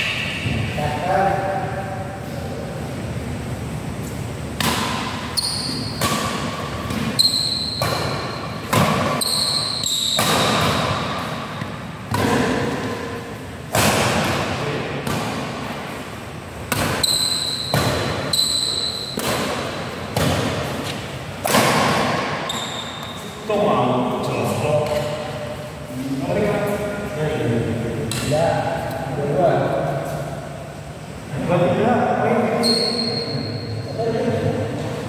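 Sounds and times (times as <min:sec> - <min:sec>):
rackets smacking shuttlecock: 0:04.6 - 0:13.1, 0:13.7 - 0:15.8, 0:16.7 - 0:23.3
shoes squeaking on court floor: 0:05.2 - 0:12.9, 0:16.7 - 0:21.2, 0:22.1 - 0:23.5, 0:32.6 - 0:34.0.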